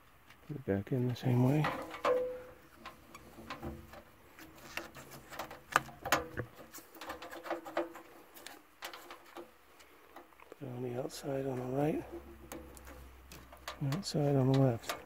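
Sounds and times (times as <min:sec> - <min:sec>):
metal clicks taps and scrapes: 0:01.6 - 0:10.6, 0:12.0 - 0:15.0.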